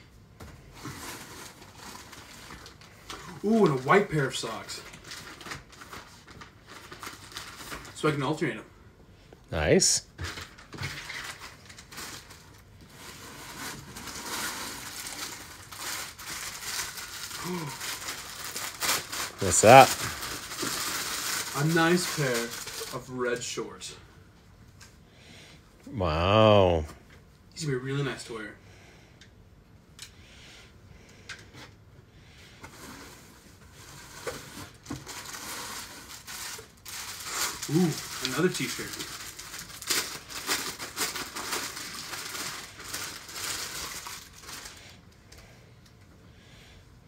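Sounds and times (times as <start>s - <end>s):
packaging rustling and crinkling: 0.8s - 8.0s, 10.3s - 23.2s, 32.7s - 44.8s
clothing and packaging rustling: 10.2s - 23.4s.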